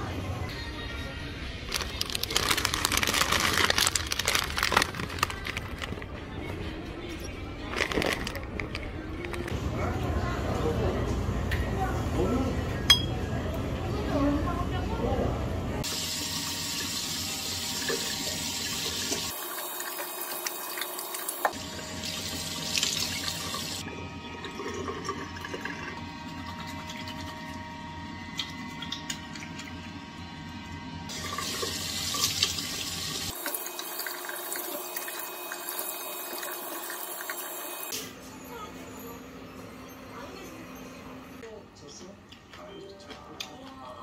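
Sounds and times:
tap water running into sink: 31.1 - 37.7.

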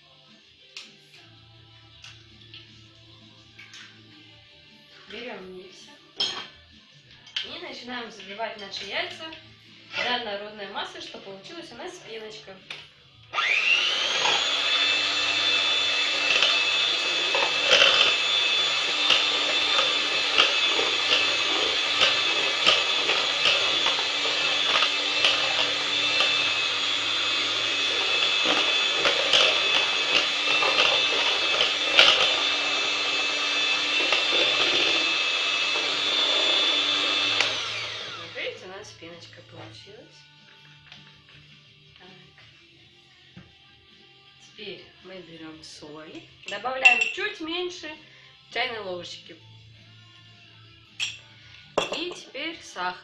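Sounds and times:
electric hand mixer running: 13.3 - 38.6.

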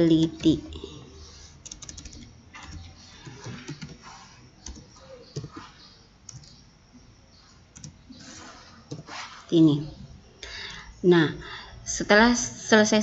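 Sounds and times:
typing on a keyboard: 1.6 - 4.0, 4.6 - 5.6, 6.3 - 6.6, 7.8 - 8.0.

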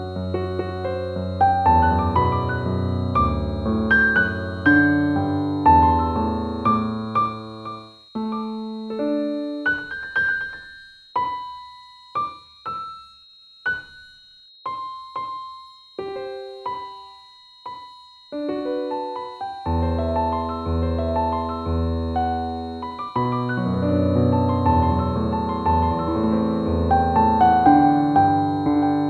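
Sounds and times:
slow piano music: 0.0 - 29.0
faint high tone: 14.6 - 29.0.

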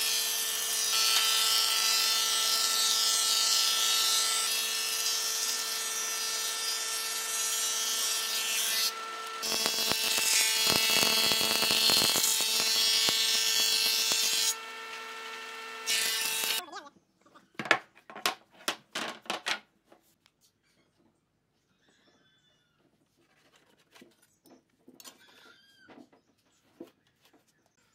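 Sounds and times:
thickness planer whining: 0.0 - 16.6.

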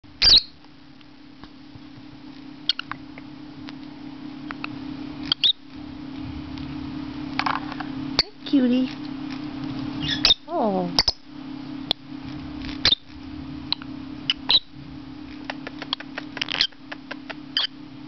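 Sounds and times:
steady low hum: 0.0 - 18.0
parrot chirping: 0.2 - 0.6, 2.6 - 3.0, 5.2 - 5.6, 10.0 - 11.3, 12.7 - 13.1, 13.7 - 17.8.

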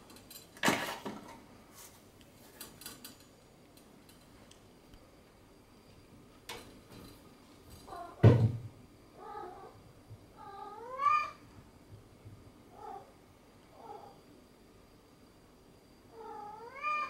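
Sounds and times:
cat meowing: 10.4 - 11.4, 16.2 - 17.0.

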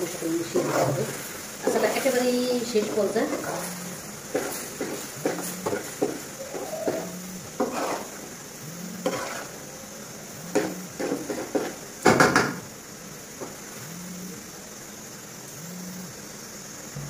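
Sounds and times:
faint sizzle of syrup: 0.0 - 17.0
metal spoon scraping metal pan: 2.9 - 8.2, 9.0 - 9.5.

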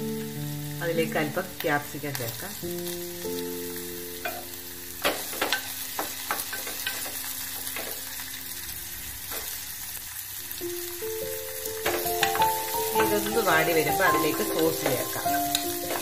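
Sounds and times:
vegetables sizzling in hot oil: 0.0 - 16.0
wooden spatula clacking on pan: 5.0 - 8.0, 11.8 - 16.0.

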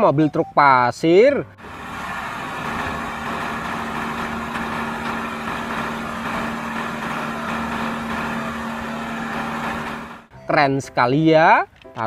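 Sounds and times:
constant hum: 1.6 - 10.3
diesel truck engine running: 1.6 - 10.3.

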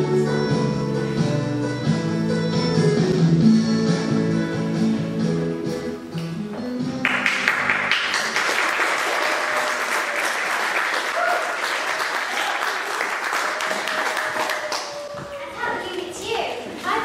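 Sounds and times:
music: 0.0 - 10.3
audience applauding: 7.0 - 15.4.

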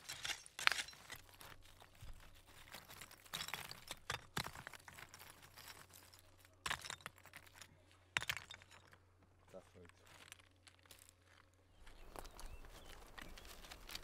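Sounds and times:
hands scraping loose gritty soil: 0.0 - 8.0, 9.6 - 14.0.

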